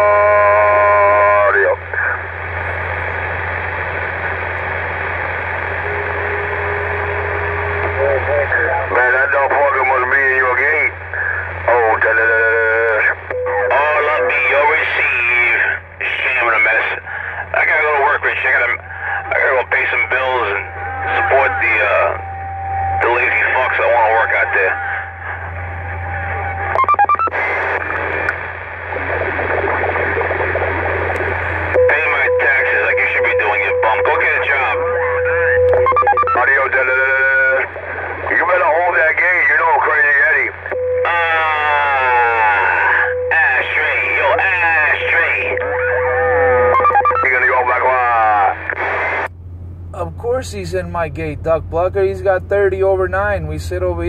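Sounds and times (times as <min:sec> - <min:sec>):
radio static hiss: 0:00.0 - 0:49.3
constant low hum: 0:00.0 - 0:54.0
electronic beeps at stepping pitches: 0:26.7 - 0:27.3.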